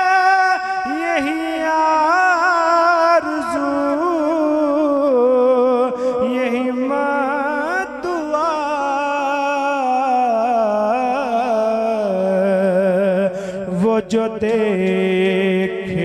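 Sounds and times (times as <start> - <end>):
man singing into microphone: 0.0 - 16.0.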